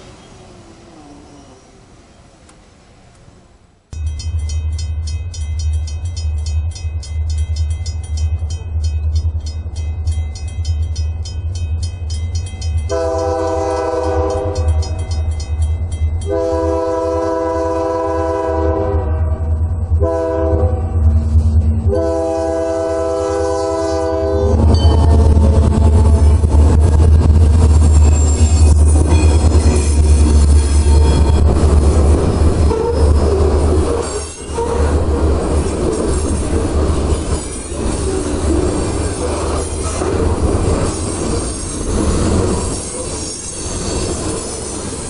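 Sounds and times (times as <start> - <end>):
crossing signal bell ringing: 4.0 - 16.9, 24.6 - 26.5, 27.2 - 33.4, 34.0 - 34.9
locomotive air horn: 12.9 - 14.9, 16.3 - 21.1, 21.8 - 26.5, 32.7 - 35.1
low rumble: 19.0 - 22.0, 24.5 - 33.7.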